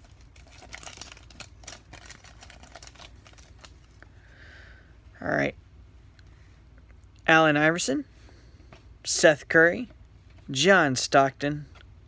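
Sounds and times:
foil pack rustling: 0:00.0 - 0:04.0.

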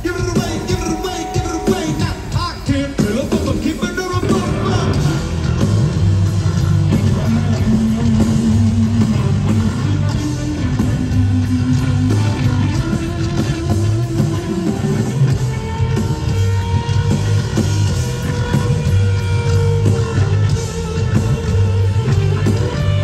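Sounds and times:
person singing: 0:00.0 - 0:05.4
electric guitar: 0:00.0 - 0:23.0
repeating bass line: 0:00.0 - 0:23.0.

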